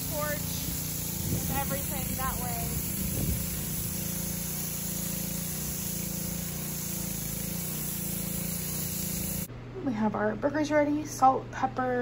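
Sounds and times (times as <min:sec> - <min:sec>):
constant hiss: 0:00.0 - 0:09.5
engine drone: 0:00.0 - 0:09.5.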